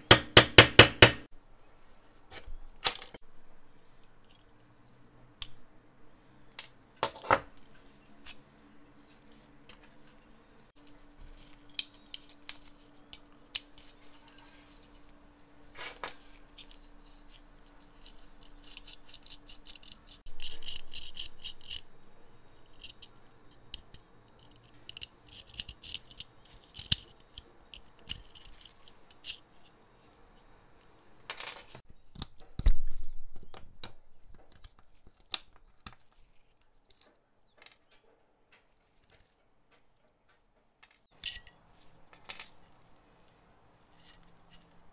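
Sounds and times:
metal parts clicking and tapping: 15.3s - 42.9s.

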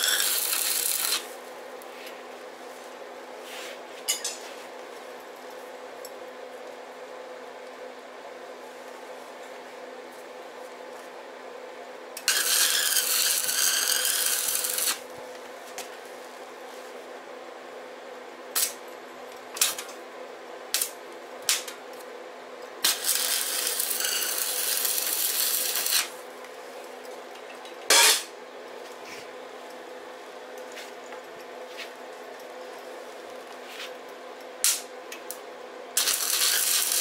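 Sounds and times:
welding arc crackling and hissing: 0.0s - 1.5s, 12.2s - 15.1s, 18.6s - 18.8s, 20.7s - 21.7s, 22.8s - 26.2s, 36.0s - 37.0s.

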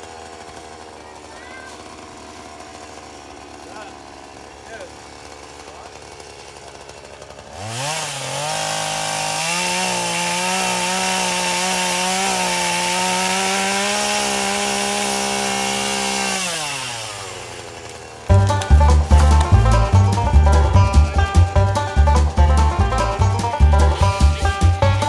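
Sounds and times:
chainsaw cutting tree trunk: 0.0s - 25.0s
music: 18.3s - 25.0s.

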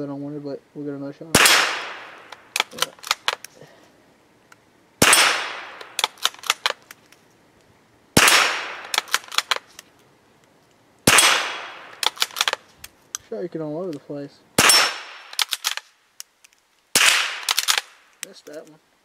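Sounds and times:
rifle shots with echo: 1.3s - 3.3s, 5.0s - 6.8s, 8.2s - 9.6s, 11.0s - 12.6s, 14.6s - 15.8s, 17.0s - 18.0s.

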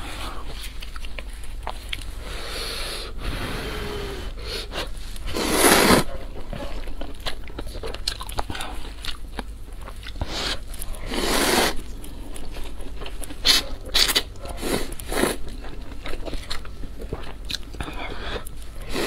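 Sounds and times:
wet chewing: 0.4s - 2.3s, 4.7s - 19.0s
noodle slurping: 5.3s - 6.1s, 10.3s - 11.8s.

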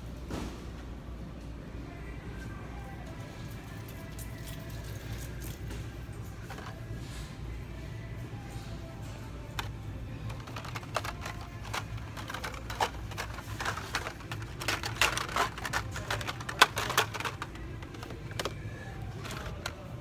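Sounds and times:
blister packs clicking on hooks: 9.6s - 19.9s.

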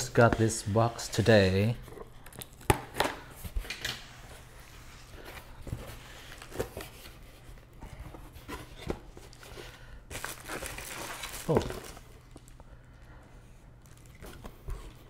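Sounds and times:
cardboard rustling: 3.5s - 12.6s.

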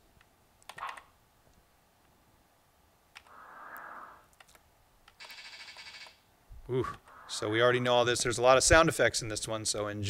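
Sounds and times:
sharp clicks: 0.2s - 1.1s, 3.1s - 6.2s.

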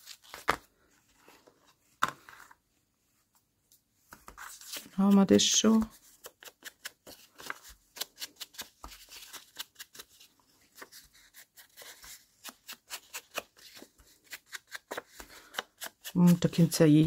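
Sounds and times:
paper crinkling: 4.2s - 16.4s.

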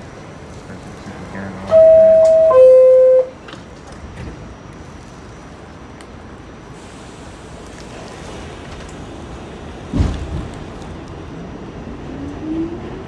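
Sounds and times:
subway car rumble: 0.0s - 13.0s
two-tone subway door chime: 1.6s - 3.4s.

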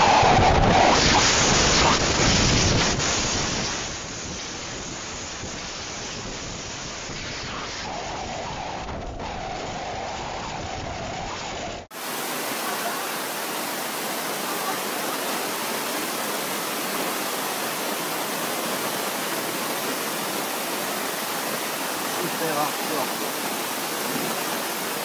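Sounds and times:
storm wind and spray: 0.0s - 25.0s
water pouring down stone steps: 12.6s - 25.0s.

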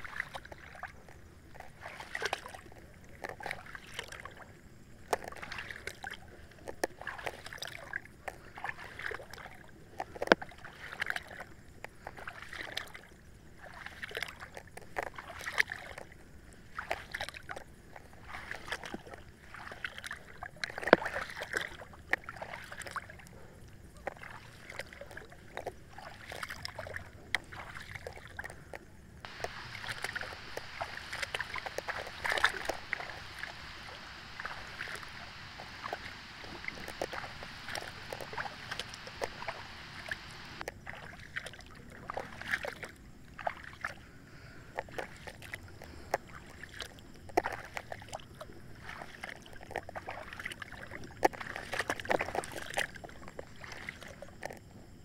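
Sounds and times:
river water splashing: 0.0s - 54.5s
sharp clicks: 29.3s - 40.7s.

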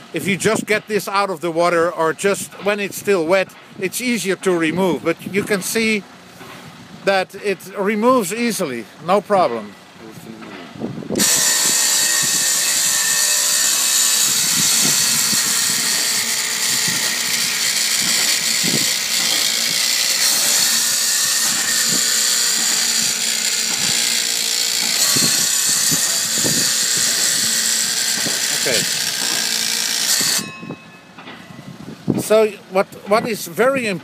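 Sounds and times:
electric blade scraping barnacles: 11.2s - 30.9s.

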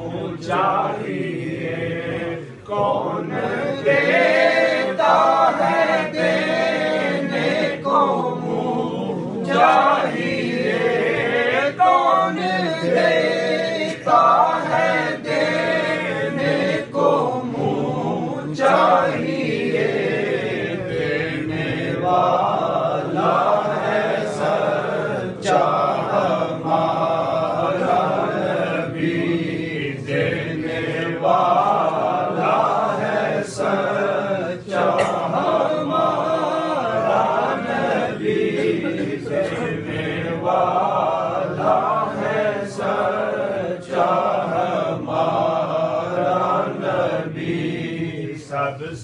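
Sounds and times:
men chanting in unison: 0.0s - 49.0s.

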